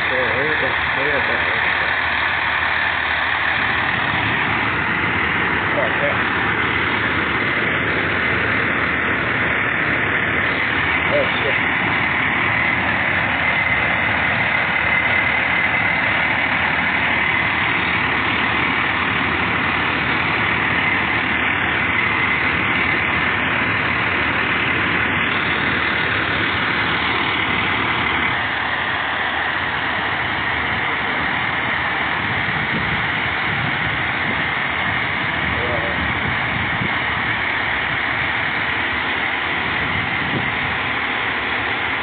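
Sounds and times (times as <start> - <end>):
diesel engine idling: 0.0 - 42.0
high whine: 0.0 - 42.0.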